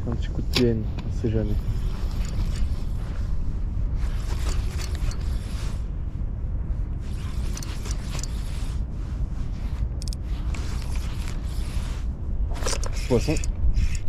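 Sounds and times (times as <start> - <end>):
wind on microphone: 0.0 - 14.0
fishing reel ratcheting whir: 1.6 - 2.9, 4.1 - 5.6, 7.1 - 8.7, 12.5 - 14.0.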